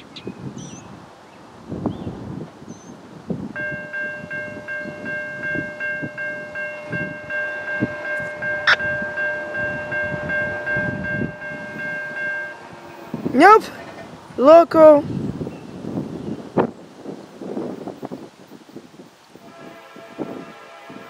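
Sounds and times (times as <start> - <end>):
locomotive air horn chord: 3.7 - 13.3, 19.4 - 21.0.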